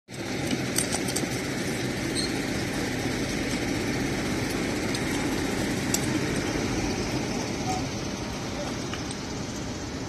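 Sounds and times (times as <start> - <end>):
engine low rumble: 0.1 - 10.0.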